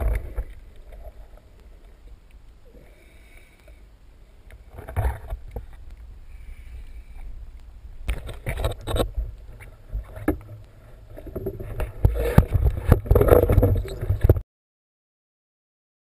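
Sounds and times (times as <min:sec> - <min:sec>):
underwater water rumble: 0:00.0 - 0:14.4
water sloshing: 0:07.9 - 0:14.4.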